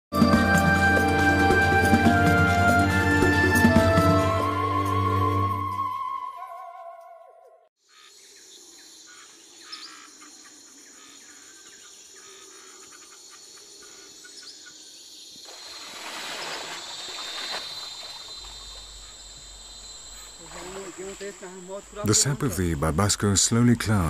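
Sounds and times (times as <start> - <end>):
bird chirps: 6.4 - 15.1
insects trilling: 7.8 - 24.0
water splashing: 15.5 - 19.4, 20.2 - 22.4.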